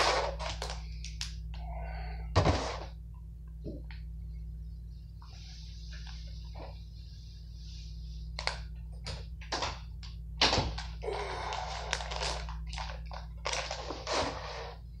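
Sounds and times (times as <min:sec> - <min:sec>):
steady low hum: 0:00.0 - 0:15.0
plastic bag crinkling: 0:11.4 - 0:14.4.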